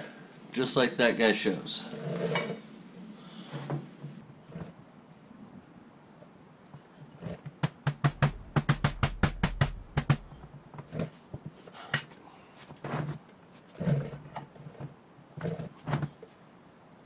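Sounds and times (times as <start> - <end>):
knocks of parts handled: 7.5 - 10.6.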